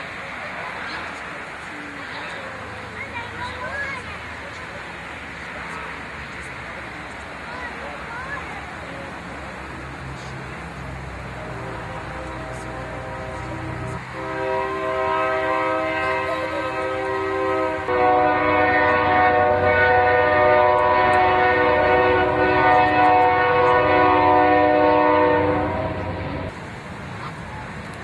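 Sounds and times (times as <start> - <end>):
train air horn blast: 11.5 - 26.5.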